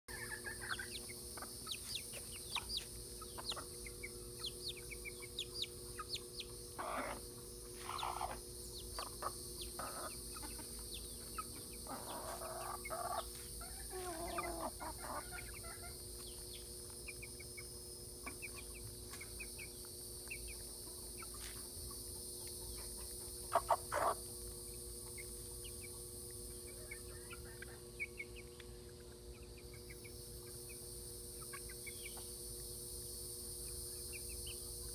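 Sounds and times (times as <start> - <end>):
chickens clucking: 0.1 - 34.9.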